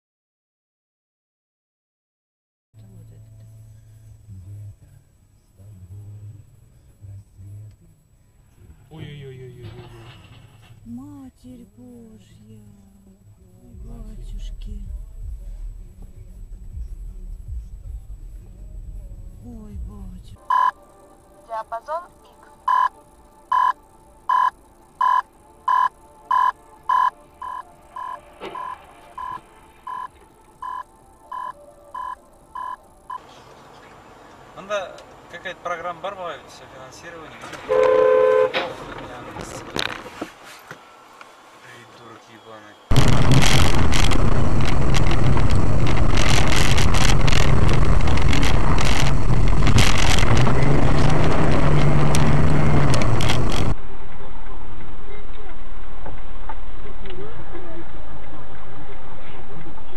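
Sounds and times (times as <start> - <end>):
car engine hum: 2.8 - 59.9
road noise on snow: 5.9 - 59.9
faint car crash: 9.4 - 10.9, 42.9 - 59.9
repeating electronic beep: 20.4 - 20.8, 22.6 - 33.2.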